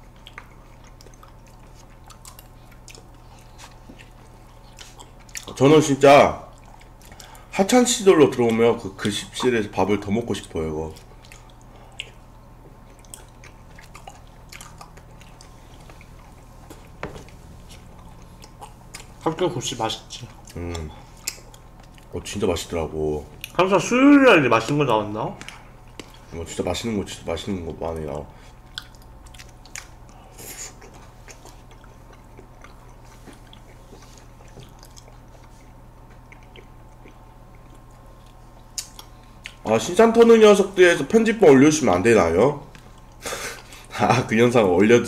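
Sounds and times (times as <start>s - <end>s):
people chewing: 0.0s - 44.6s
steady low hum: 0.0s - 45.0s
mouth eating sounds: 8.3s - 40.8s.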